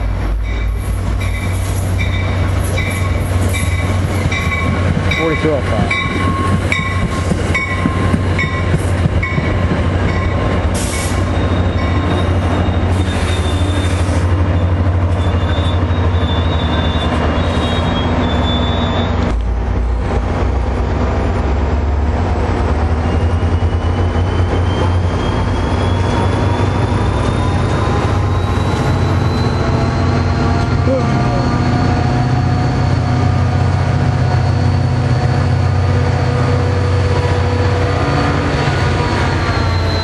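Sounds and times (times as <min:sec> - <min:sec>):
train wheels rumbling on rails: 0:00.0 - 0:40.0
wheel squeal: 0:10.9 - 0:19.3, 0:22.9 - 0:31.8, 0:38.4 - 0:40.0.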